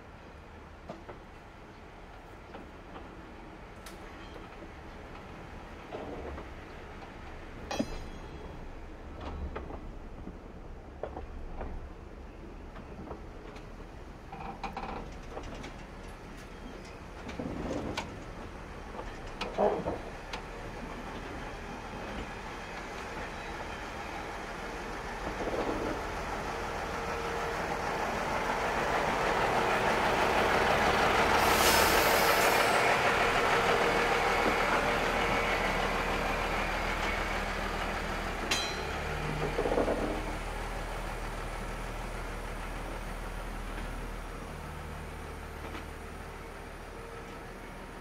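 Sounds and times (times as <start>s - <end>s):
diesel train passing: 15.9s - 48.0s
brief hiss: 31.4s - 33.0s.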